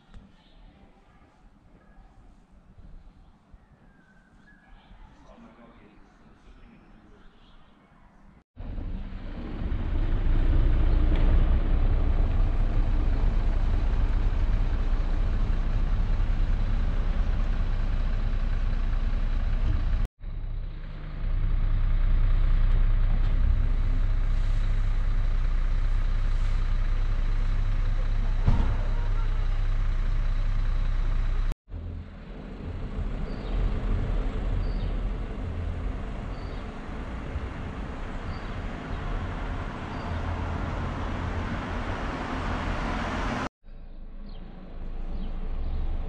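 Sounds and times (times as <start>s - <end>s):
vehicle engine rumbling: 8.6s - 46.0s.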